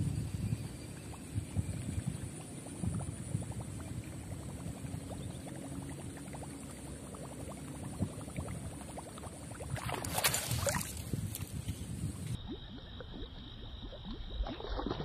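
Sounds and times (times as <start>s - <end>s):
water lapping against boat hull: 0.6s - 12.3s.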